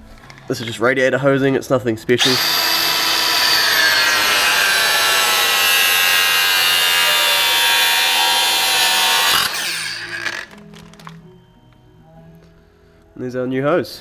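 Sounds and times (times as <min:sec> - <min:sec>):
angle grinder cutting hose: 0:02.2 - 0:10.6.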